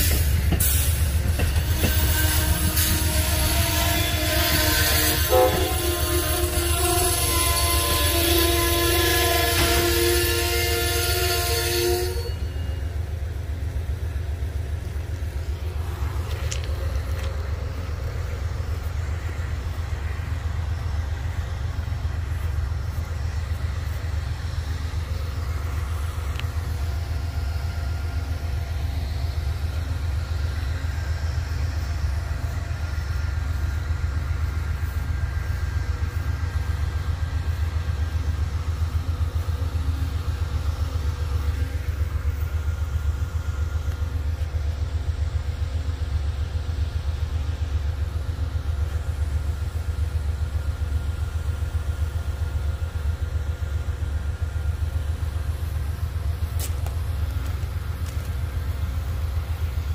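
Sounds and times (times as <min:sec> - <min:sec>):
freight train rumbling on rails: 0:00.0 - 0:59.9.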